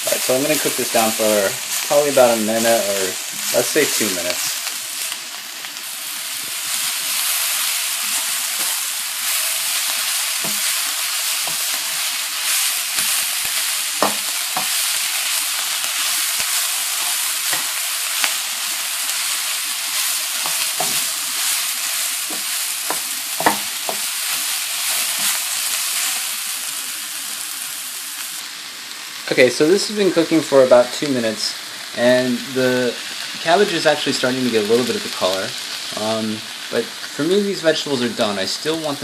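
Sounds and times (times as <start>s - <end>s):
vegetables sizzling in hot oil: 0.0s - 39.0s
wooden spoon knocking against pan: 14.0s - 14.7s, 22.3s - 24.0s.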